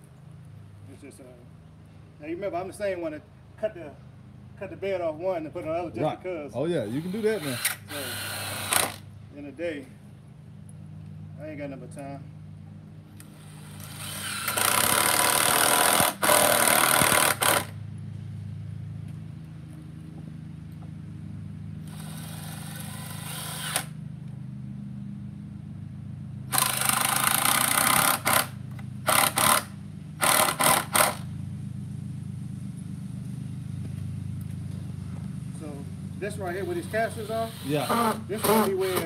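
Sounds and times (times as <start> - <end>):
steady low hum: 0.0 - 39.0
screw gun driving screws: 7.0 - 9.0, 29.1 - 31.2, 37.5 - 39.0.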